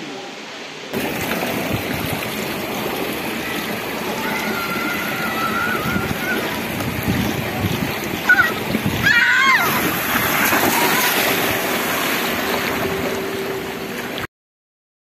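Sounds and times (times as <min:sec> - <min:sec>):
water rushing down slide: 0:00.8 - 0:14.3
wind buffeting microphone: 0:04.8 - 0:13.1.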